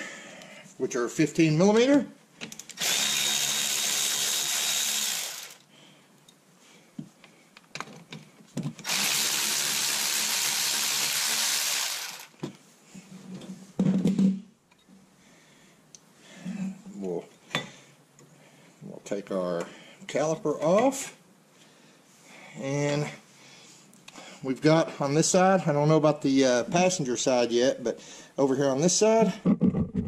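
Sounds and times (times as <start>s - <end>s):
electric ratchet running: 2.8s - 5.6s, 8.8s - 12.4s
thump: 13.8s - 14.4s.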